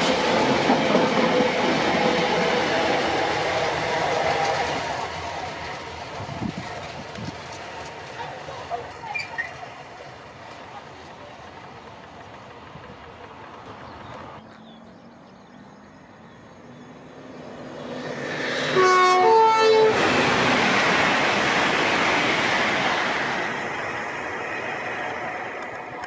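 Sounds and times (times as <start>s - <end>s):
train passing: 0.0s - 26.0s
train horn: 18.7s - 20.1s.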